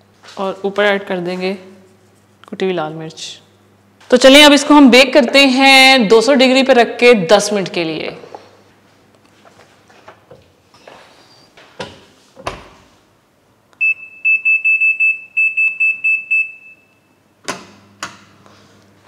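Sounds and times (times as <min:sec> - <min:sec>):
oven control panel beeping: 0:13.8 - 0:17.1.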